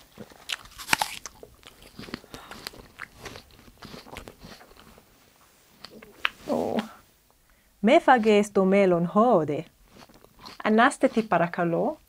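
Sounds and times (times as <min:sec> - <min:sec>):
apple bitten with a crunch: 0:00.0 - 0:04.9, 0:10.0 - 0:11.4
crunchy chewing: 0:00.0 - 0:05.1, 0:09.8 - 0:11.6.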